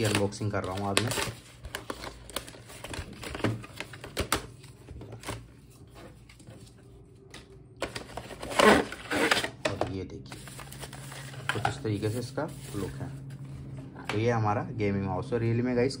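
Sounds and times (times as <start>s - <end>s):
cardboard tearing: 0.0s - 4.4s, 7.9s - 9.6s
cardboard crackling and rustling: 0.0s - 6.8s, 10.3s - 13.7s.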